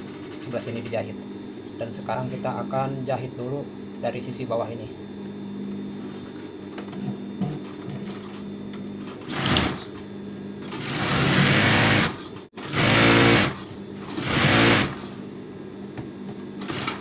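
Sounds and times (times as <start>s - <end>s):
steady hum: 0.0s - 17.0s
sewing machine stitching: 9.3s - 9.8s, 10.7s - 15.1s.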